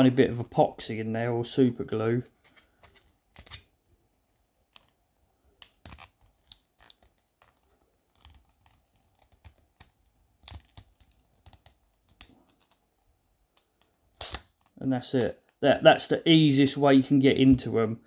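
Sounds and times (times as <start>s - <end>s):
plastic clicks and scrapes: 2.2s - 3.7s, 4.4s - 15.6s.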